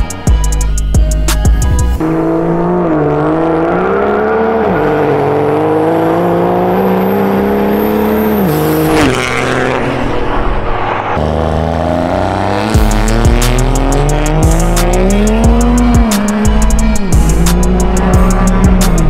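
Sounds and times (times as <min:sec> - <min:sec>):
high whine: 0:00.0 - 0:02.2, 0:07.5 - 0:19.0
diesel engine revving: 0:00.0 - 0:19.0.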